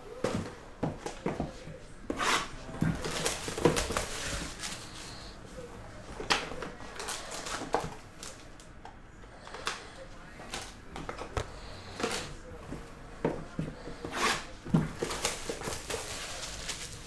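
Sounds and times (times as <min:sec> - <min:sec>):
foil packs rustling: 0:02.8 - 0:05.4, 0:06.3 - 0:08.7, 0:14.8 - 0:17.0.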